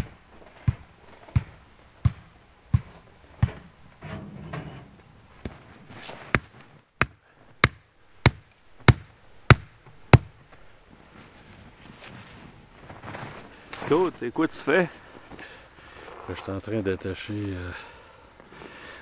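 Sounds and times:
hatchet pounding wooden stake: 6.3 - 10.3.

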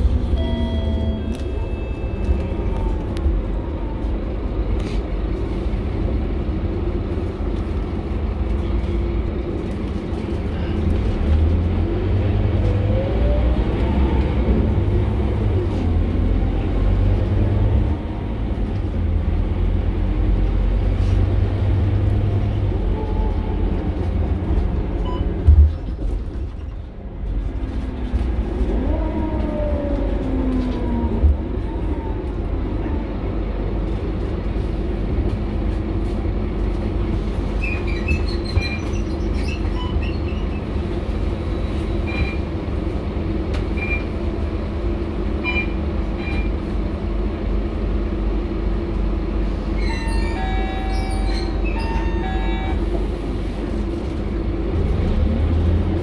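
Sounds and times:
bus engine rumble and whine: 0.0 - 56.0.

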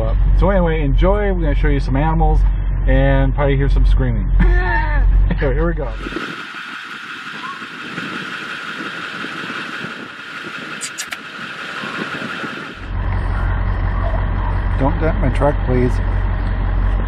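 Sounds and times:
vehicle engine hum: 0.0 - 17.0
short high clicks: 10.8 - 11.2.

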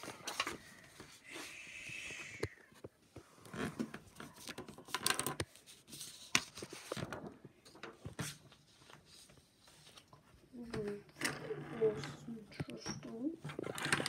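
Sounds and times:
paper rustling: 3.7 - 11.0.

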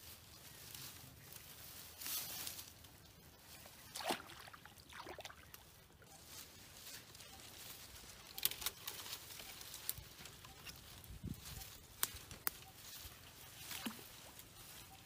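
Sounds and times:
leaves and twigs rustling: 0.0 - 15.0
twigs snapping: 8.3 - 10.1, 11.9 - 12.6.

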